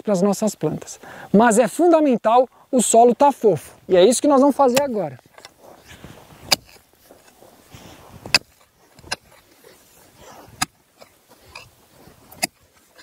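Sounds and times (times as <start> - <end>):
pickaxe striking dry soil: 4.6 - 13.0.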